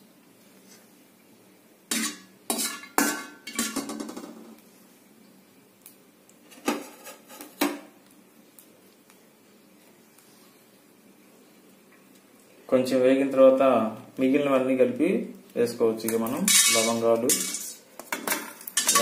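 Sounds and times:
metal spatula clanking in pan: 1.9s - 4.1s, 16.5s - 17.8s, 18.7s - 19.0s.

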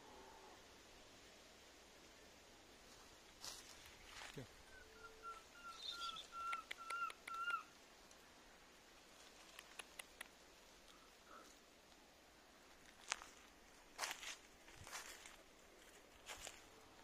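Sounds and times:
monkey whistling: 4.7s - 7.7s
faint ticks: 6.4s - 8.2s, 9.2s - 12.0s.

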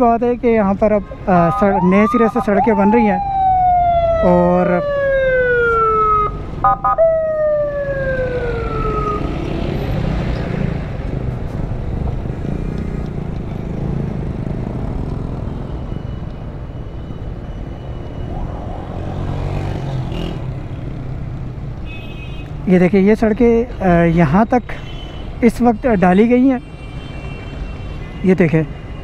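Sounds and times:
engines and street traffic rumble: 0.0s - 29.0s
ambulance siren wailing: 1.3s - 10.0s, 15.6s - 20.0s
brief beep: 15.7s - 18.7s.

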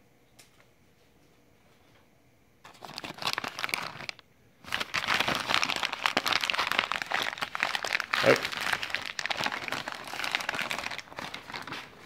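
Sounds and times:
plastic bag crinkling: 2.7s - 12.0s.

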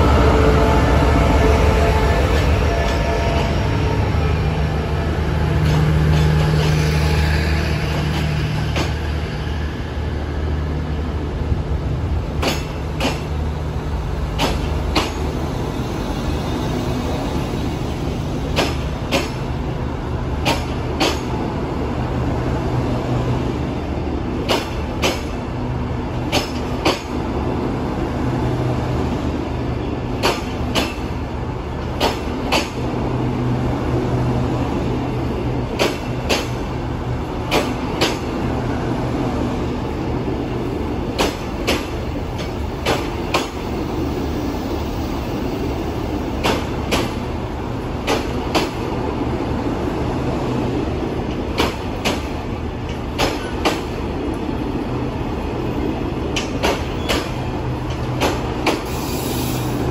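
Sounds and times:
train wheels clicking over rail joint: 7.9s - 9.1s, 12.4s - 13.4s, 14.3s - 15.4s, 18.5s - 19.5s, 20.4s - 21.4s, 24.4s - 25.4s, 26.2s - 27.2s, 30.2s - 31.1s, 31.8s - 32.8s, 35.7s - 36.7s, 37.4s - 38.3s, 41.1s - 43.6s, 46.4s - 47.3s, 48.0s - 48.9s, 51.3s - 54.0s, 56.3s - 59.7s.

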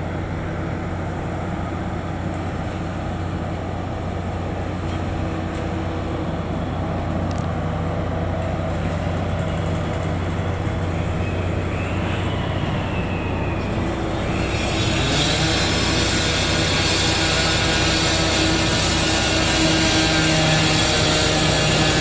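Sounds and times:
diesel engine humming: 0.0s - 22.0s
faint high squeal: 10.7s - 17.6s.

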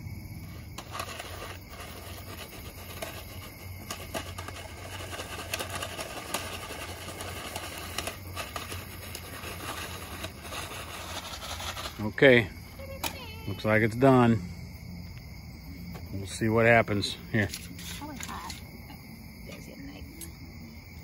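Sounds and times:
foil pan rustling: 0.8s - 12.2s.

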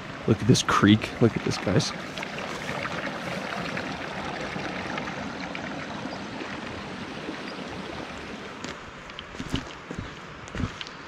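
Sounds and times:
creek trickling: 0.0s - 11.0s
footsteps: 8.6s - 10.9s.

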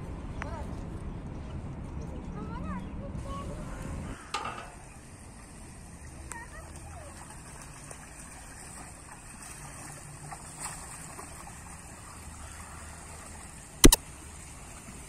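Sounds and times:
water running down a channel: 4.8s - 15.0s.

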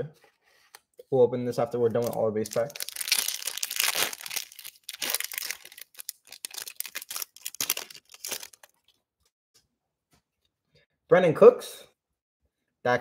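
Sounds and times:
foil wrapper crinkling and tearing: 1.9s - 8.9s.

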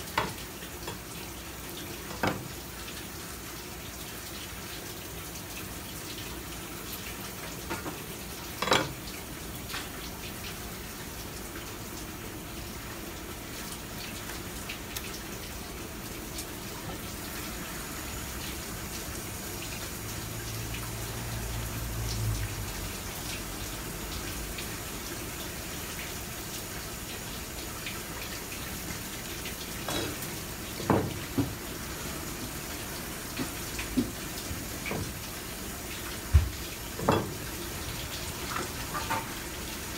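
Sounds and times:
tap water running: 0.0s - 39.9s.

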